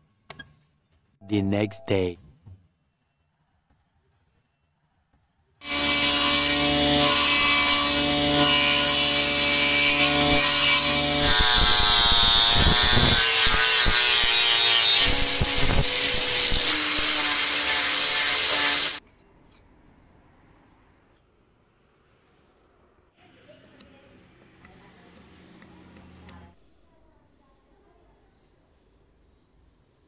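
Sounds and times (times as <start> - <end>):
table saw cutting wood: 5.6 - 19.0
angle grinder sanding wood: 9.9 - 19.0.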